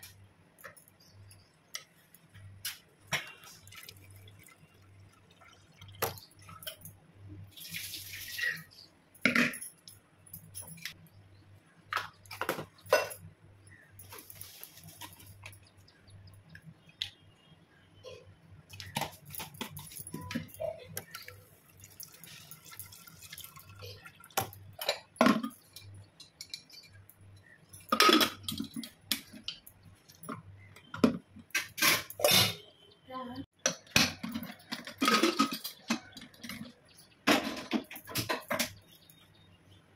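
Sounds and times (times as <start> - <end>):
water dripping and splashing: 1.0 - 8.9, 18.7 - 26.6
metal pot knocks and clinks: 9.2 - 11.0, 11.9 - 13.3, 18.8 - 32.6, 33.6 - 39.0.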